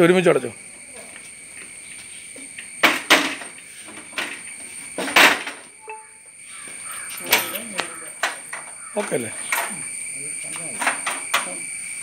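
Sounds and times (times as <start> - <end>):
metal shutters clanking shut: 2.8 - 6.2, 6.9 - 9.8, 10.6 - 11.6.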